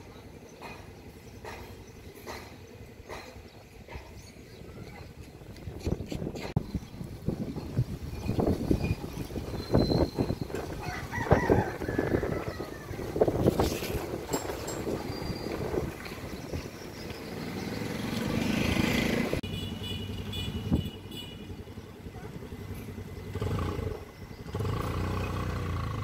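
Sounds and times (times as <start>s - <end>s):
motor vehicles passing: 0.0s - 26.0s
motorcycles passing: 7.1s - 26.0s.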